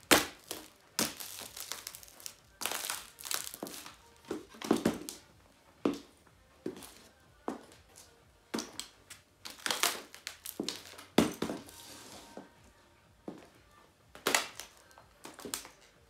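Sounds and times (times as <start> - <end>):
laptop screen cracking underfoot: 0.0 - 5.2, 8.6 - 11.6, 14.2 - 15.9.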